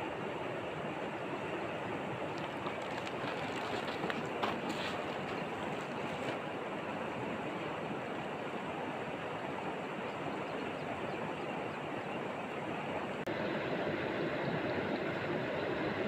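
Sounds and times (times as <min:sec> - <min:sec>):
river water rushing: 0:00.0 - 0:11.6.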